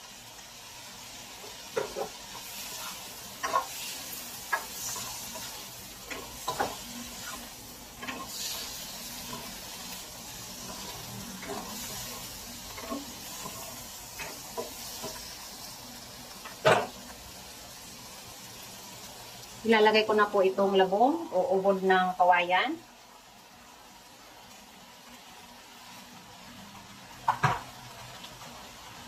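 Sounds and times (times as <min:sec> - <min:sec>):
shrimp sizzling in wok: 0:00.0 - 0:29.0
utensil scraping and knocking wok: 0:01.3 - 0:15.6.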